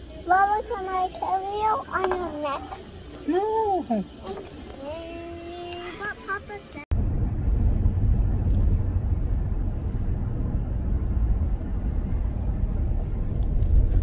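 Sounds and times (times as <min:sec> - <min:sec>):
car road and engine noise: 0:04.2 - 0:14.0.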